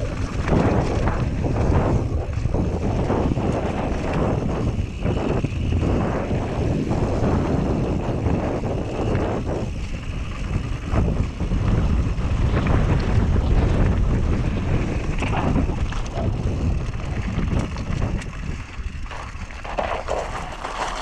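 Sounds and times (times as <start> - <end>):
bike rattles and clicks: 0.0 - 21.0
wind buffeting microphone: 0.0 - 21.0
tyres crunching on gravel: 12.3 - 21.0.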